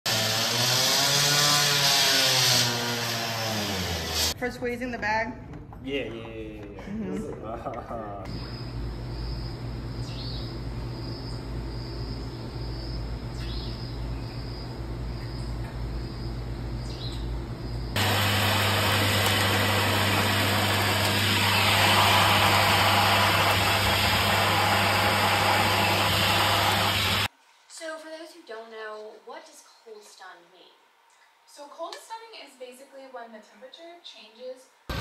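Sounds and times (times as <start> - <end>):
steady low hum: 4.4 - 18.2
vacuum sucking up sand: 18.0 - 27.3.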